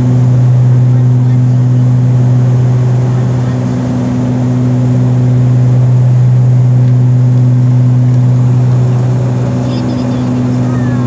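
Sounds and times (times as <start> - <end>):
jet engines humming: 0.0 - 11.0.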